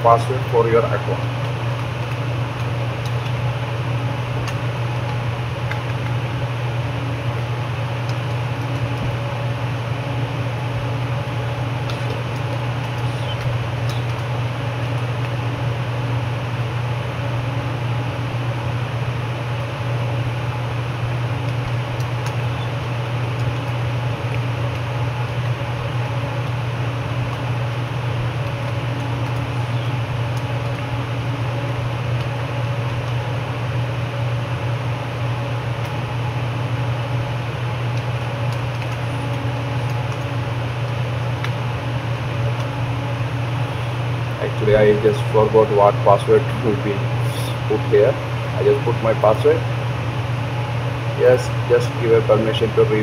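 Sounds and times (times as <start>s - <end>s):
mechanical hum and hiss: 0.0s - 53.0s
faint clicks: 11.9s - 14.3s.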